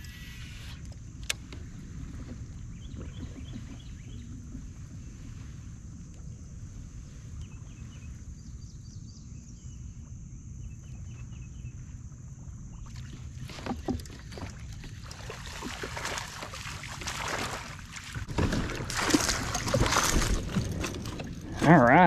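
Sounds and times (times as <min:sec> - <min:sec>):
fish splashing in water: 0:12.9 - 0:20.8.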